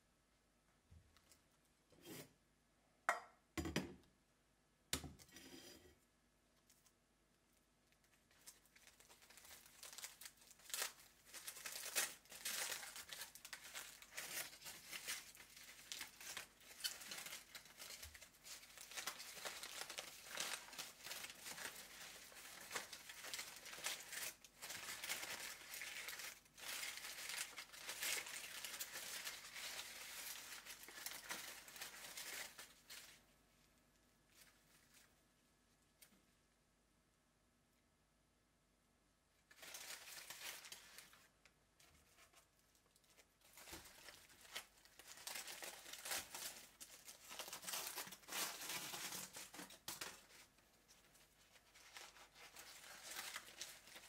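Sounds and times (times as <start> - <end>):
aluminium foil crinkling and tearing: 6.6 - 35.2, 39.5 - 54.0.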